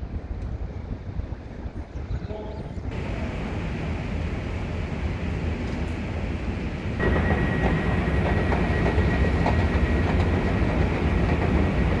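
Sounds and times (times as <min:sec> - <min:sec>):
low rumble of underground station: 0:00.0 - 0:12.0
thin high whine: 0:07.0 - 0:10.0.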